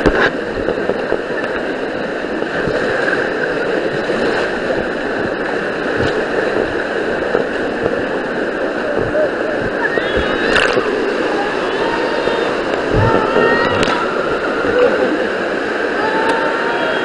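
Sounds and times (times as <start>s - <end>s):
rushing whitewater: 0.0s - 17.0s
low bumps: 3.9s - 15.4s.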